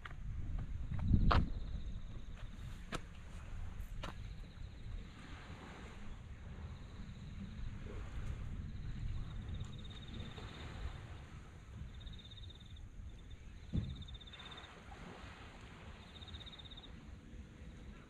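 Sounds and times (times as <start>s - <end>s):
wind on microphone: 0.0s - 16.4s
thump: 13.7s - 14.2s.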